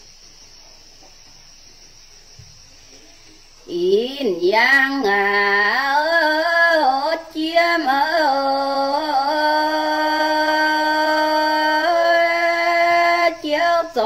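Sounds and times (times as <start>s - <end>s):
woman singing unaccompanied: 3.7s - 14.0s.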